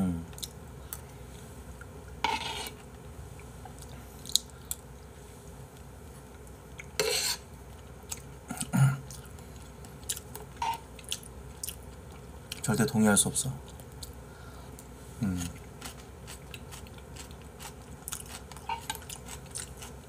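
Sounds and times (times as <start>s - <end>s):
chewing and mouth noises: 8.0s - 12.7s, 15.5s - 20.0s.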